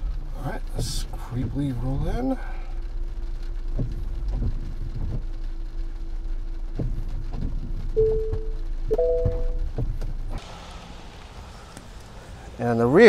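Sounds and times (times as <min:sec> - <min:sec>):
rain and tyres rumbling: 0:00.0 - 0:13.0
clear higher tone: 0:08.0 - 0:09.7
faint steady tone: 0:08.0 - 0:09.7.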